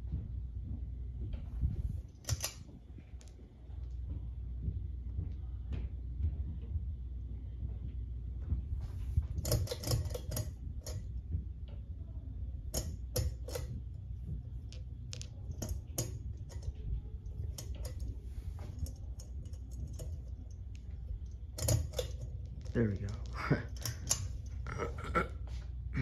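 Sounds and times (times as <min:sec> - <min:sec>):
ceiling fan hum: 0:00.0 - 0:26.0
pull-chain switch clicking: 0:02.2 - 0:02.6, 0:09.4 - 0:11.0, 0:12.8 - 0:13.8, 0:21.6 - 0:24.5.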